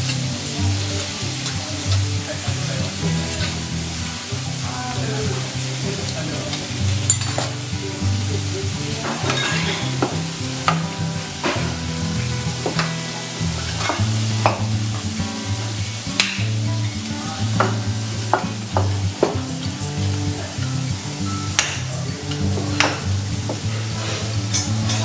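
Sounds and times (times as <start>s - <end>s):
background music with bass: 0.0s - 25.0s
vegetables sizzling on griddle: 0.0s - 25.0s
metal spatula scraping griddle: 9.1s - 10.0s, 23.9s - 25.0s.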